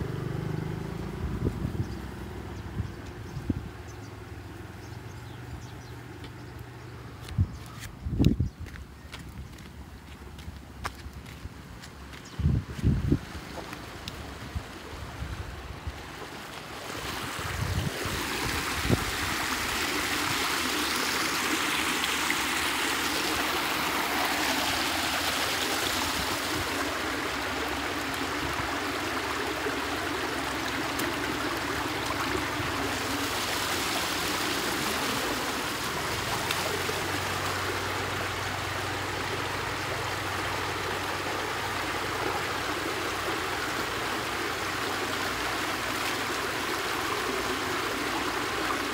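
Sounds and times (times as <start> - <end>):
water rushing through a pipe: 13.2 - 48.9.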